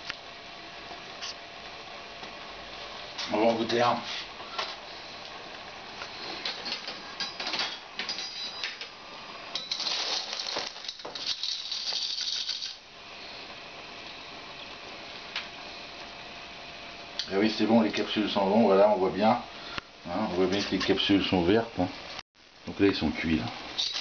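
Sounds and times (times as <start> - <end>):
shells clattering in metal pot: 9.5 - 12.8, 23.8 - 24.0.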